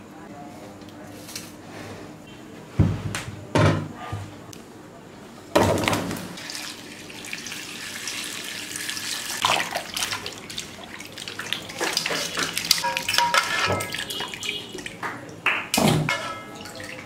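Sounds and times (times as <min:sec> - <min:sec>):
water pouring and splashing: 0:06.4 - 0:15.0, 0:15.9 - 0:17.0.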